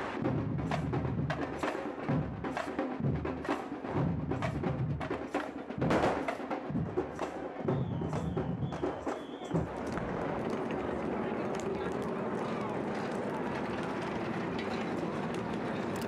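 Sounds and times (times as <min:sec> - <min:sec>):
drum band playing: 0:00.0 - 0:11.2
sharp drum strikes: 0:02.5 - 0:07.3.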